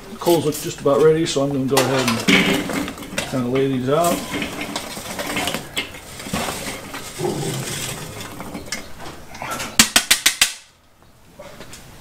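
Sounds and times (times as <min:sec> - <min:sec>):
metal tool raking charcoal: 0:00.1 - 0:09.0.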